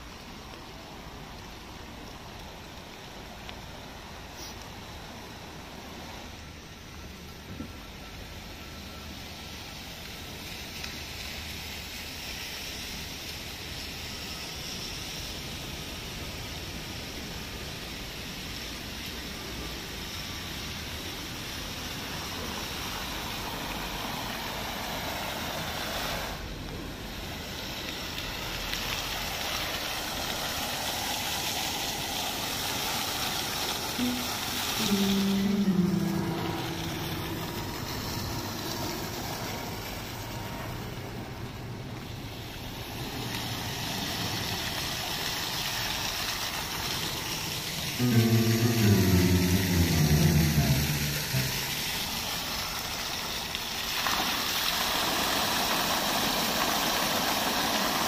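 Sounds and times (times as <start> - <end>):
rain: 0.0 - 58.0
fountain splashing into basin: 8.4 - 58.0
short low tones: 34.0 - 38.5, 48.0 - 51.9.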